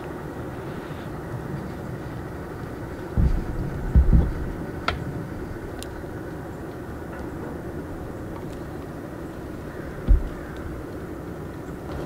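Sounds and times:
low outdoor rumble: 0.0s - 12.0s
dull low thumps: 3.1s - 5.6s, 10.0s - 10.6s.

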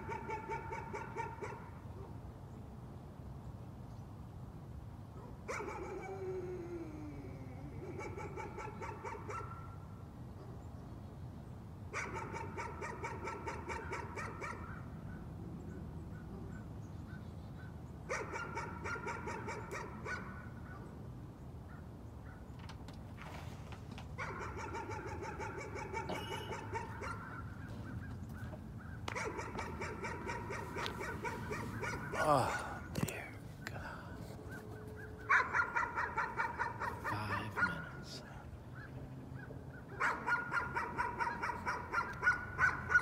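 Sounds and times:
dog barking: 0.0s - 2.2s, 5.2s - 6.1s, 7.8s - 9.8s, 11.9s - 14.8s, 18.1s - 20.8s, 24.2s - 28.0s, 29.1s - 32.9s, 35.0s - 38.3s, 39.9s - 43.0s.

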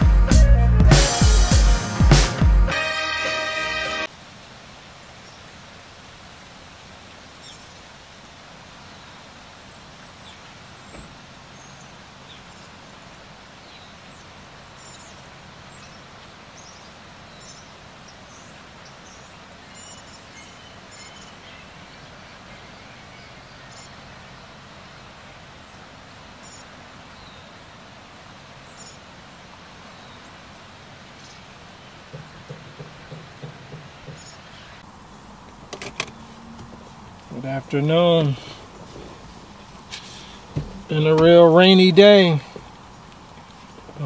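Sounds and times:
birds chirping: 7.1s - 44.0s
soft knock: 32.1s - 34.4s.

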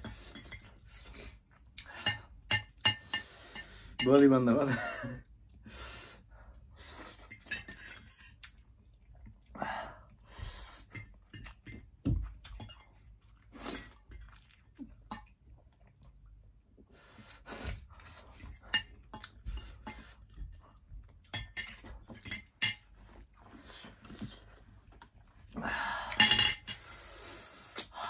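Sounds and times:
chewing: 12.4s - 16.3s
forks clinking on ceramic plates: 21.3s - 22.8s.

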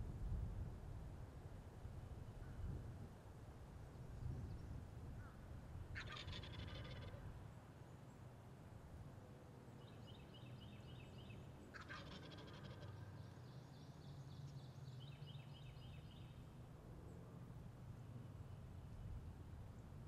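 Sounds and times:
distant turkeys gobbling: 6.0s - 7.2s, 11.7s - 13.2s.

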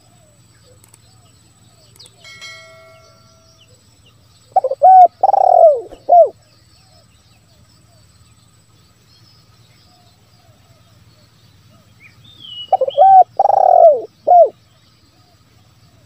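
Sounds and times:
dove cooing: 4.5s - 6.4s, 12.5s - 14.6s.

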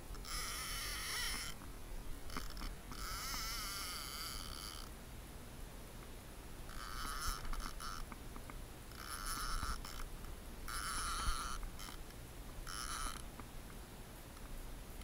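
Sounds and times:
fishing reel whirring: 0.1s - 1.6s, 2.3s - 4.9s, 6.7s - 8.1s, 8.9s - 10.1s, 10.7s - 13.2s.

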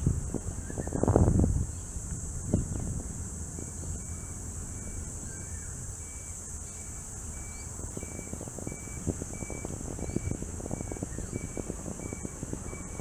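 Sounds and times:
bicycle rolling on pavement: 0.0s - 13.0s
high-pitched insect drone: 0.0s - 13.0s
wind rumble on microphone: 0.0s - 13.0s.

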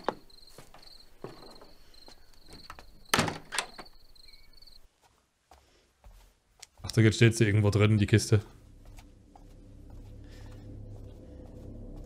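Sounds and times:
crickets chirping: 0.0s - 4.9s.

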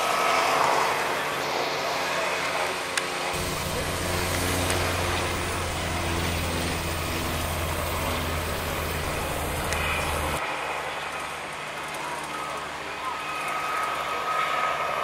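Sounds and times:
low engine drone: 0.3s - 11.2s.

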